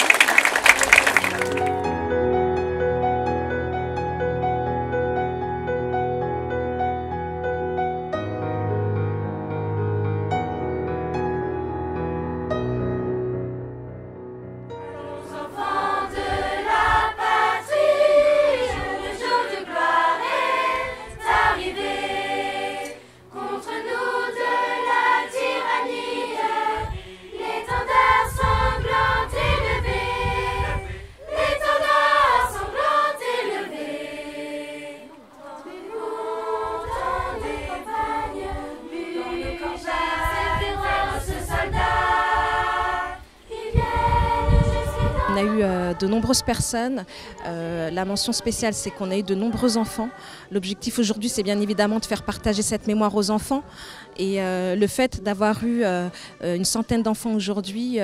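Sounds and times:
children's choir singing: 14.8s - 52.8s.

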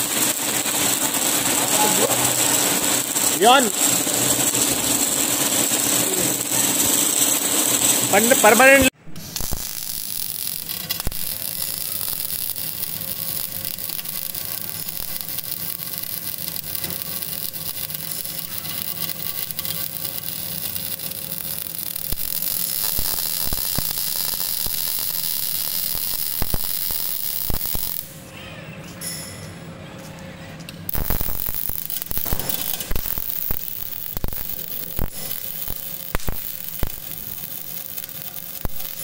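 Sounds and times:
machine hum: 0.0s - 28.2s
welding arc hissing and crackling: 0.0s - 28.2s, 30.8s - 39.0s.

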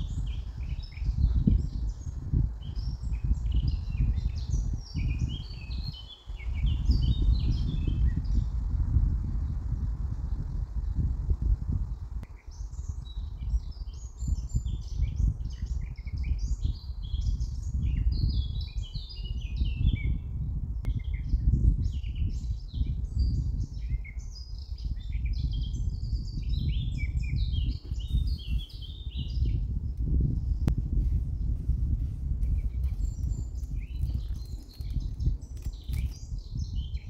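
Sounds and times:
birds chirping: 0.0s - 8.6s, 20.8s - 30.7s, 32.4s - 37.0s
steady low rumble: 0.0s - 16.3s, 25.7s - 37.0s.

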